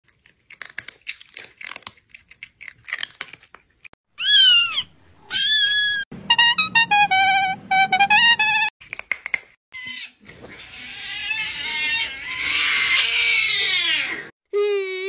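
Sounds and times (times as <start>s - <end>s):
popcorn crunching: 0.0s - 3.9s
cat meowing: 4.2s - 6.0s.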